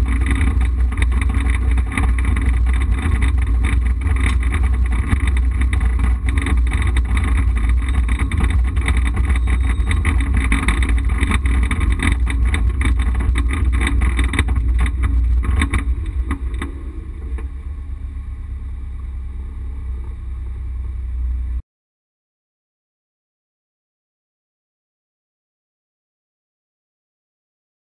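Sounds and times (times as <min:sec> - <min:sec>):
rally car engine running hard: 0:00.0 - 0:21.6
road and cabin noise: 0:00.0 - 0:21.6.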